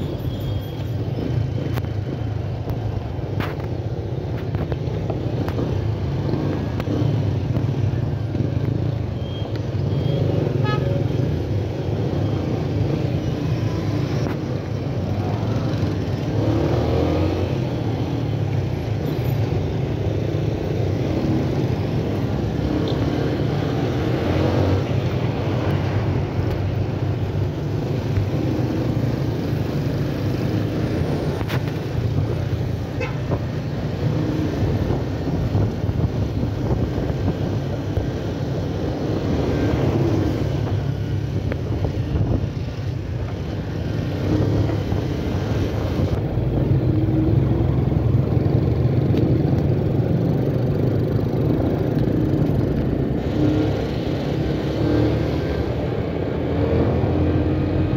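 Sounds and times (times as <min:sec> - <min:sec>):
road traffic: 0:00.0 - 0:57.9.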